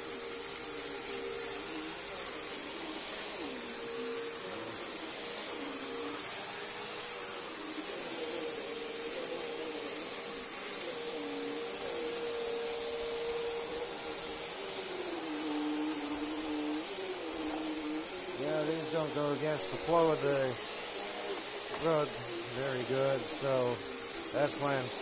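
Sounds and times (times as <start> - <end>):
vacuum cleaner running: 0.0 - 25.0.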